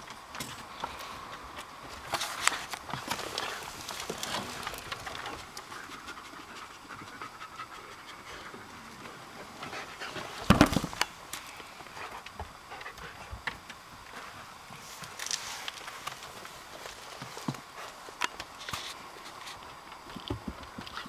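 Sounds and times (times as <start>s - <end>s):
dog panting: 5.0s - 10.4s.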